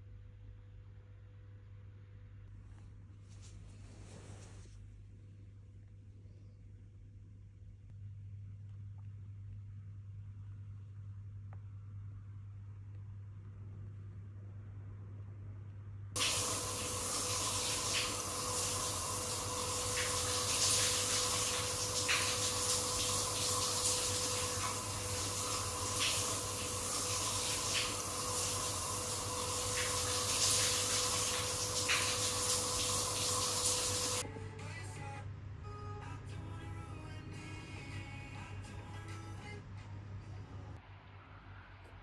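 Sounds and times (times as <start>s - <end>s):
water pouring into stone bathtub: 16.2s - 34.2s.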